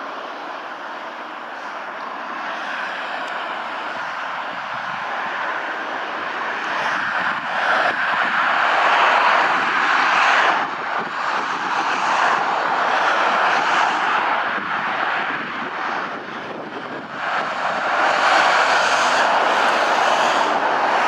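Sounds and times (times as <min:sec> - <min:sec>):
road traffic passing: 0:00.0 - 0:21.0.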